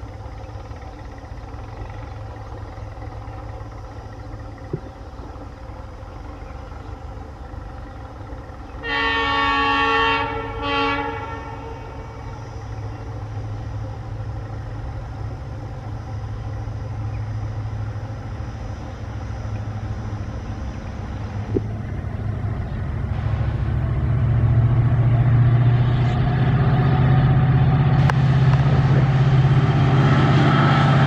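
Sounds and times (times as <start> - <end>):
locomotive engine rumble: 0.0 - 31.0
locomotive horn blasts: 8.8 - 12.3.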